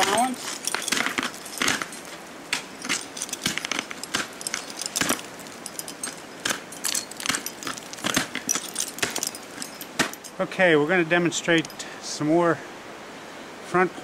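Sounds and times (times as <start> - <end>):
crampons crunching into ice: 0.0 - 10.2
metallic clinking: 0.0 - 10.5, 11.4 - 11.9.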